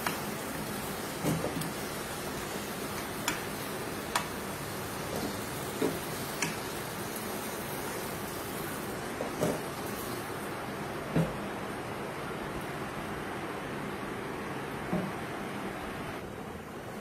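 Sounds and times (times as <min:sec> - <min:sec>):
oil sizzling in a pot: 0:00.0 - 0:10.9.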